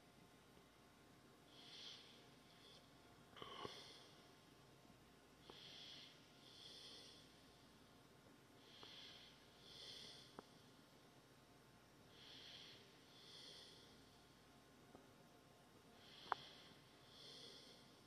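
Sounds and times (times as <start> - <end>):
slow breathing close to microphone: 1.5 - 4.4, 5.4 - 7.8, 8.6 - 11.0, 12.1 - 14.4, 15.9 - 18.0.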